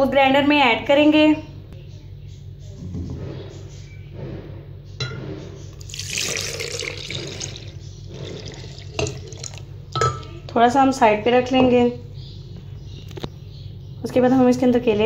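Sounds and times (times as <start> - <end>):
milk pouring and splashing: 5.8 - 9.7.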